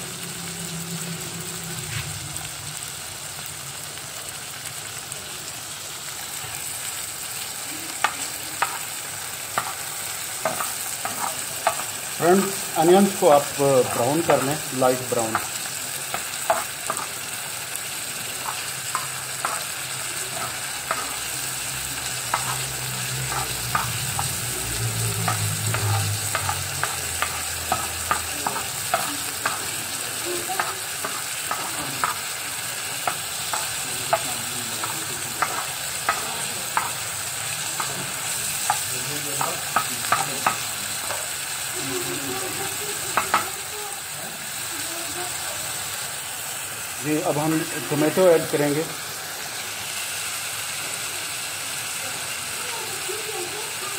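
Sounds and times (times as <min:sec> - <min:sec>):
onions sizzling in a pan: 0:00.0 - 0:53.9
spatula scraping a pan: 0:09.5 - 0:17.4, 0:22.1 - 0:24.4.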